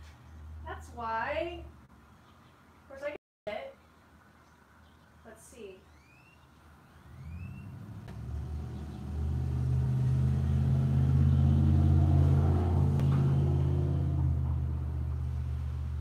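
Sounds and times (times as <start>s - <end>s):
low engine rumble: 7.1s - 16.0s.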